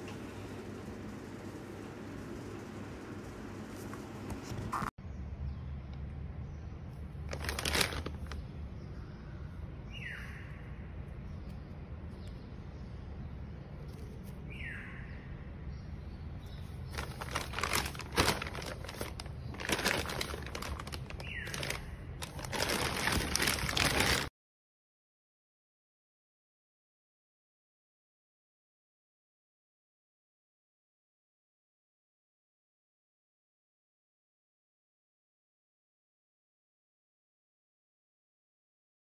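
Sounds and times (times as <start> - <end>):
plastic bags crinkling: 7.2 - 8.4, 16.8 - 24.3
bird chirping: 8.2 - 22.5.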